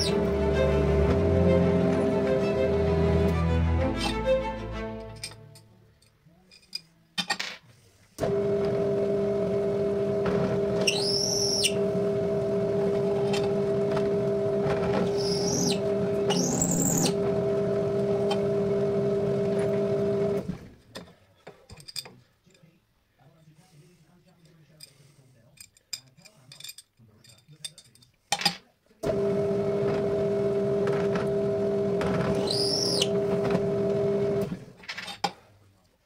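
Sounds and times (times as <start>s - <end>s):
drill bit squealing in metal: 0.0s - 0.2s, 10.8s - 11.8s, 15.0s - 17.2s, 32.2s - 33.2s
drill press motor humming: 0.0s - 3.4s, 8.2s - 20.7s, 29.0s - 34.6s.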